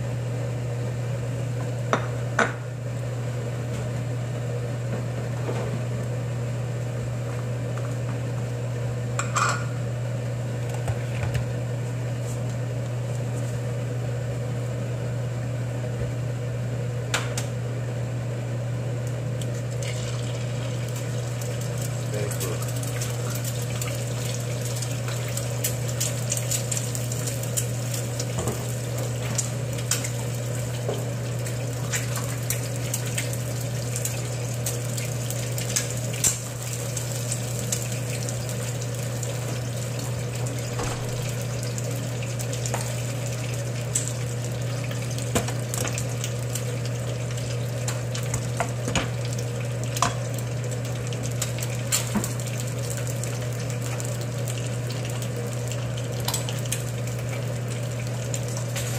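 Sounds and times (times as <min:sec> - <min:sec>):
egg sizzling in oil: 0:19.4 - 0:58.9.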